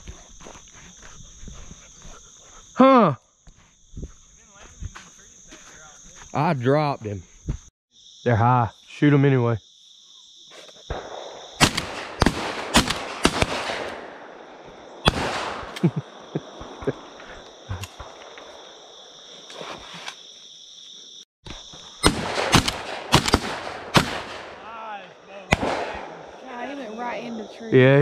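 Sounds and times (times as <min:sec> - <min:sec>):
crickets droning: 0:00.0 - 0:28.0
shotgun shots: 0:10.9 - 0:17.2, 0:22.0 - 0:24.8, 0:25.5 - 0:26.4.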